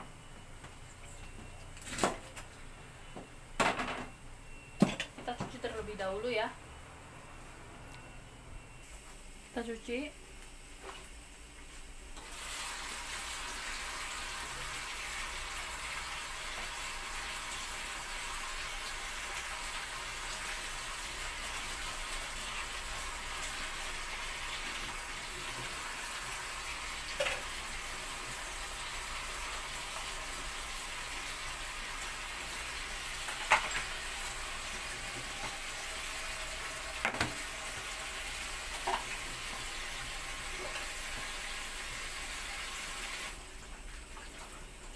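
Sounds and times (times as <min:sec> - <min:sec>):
vegetables rinsed by hand: 0:12.2 - 0:44.9.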